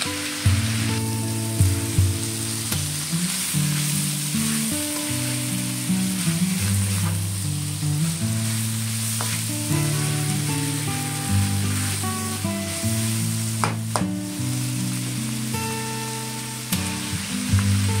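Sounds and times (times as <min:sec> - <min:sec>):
pork sizzling in a wok: 0:00.0 - 0:18.0
spatula scraping a pan: 0:03.3 - 0:13.3.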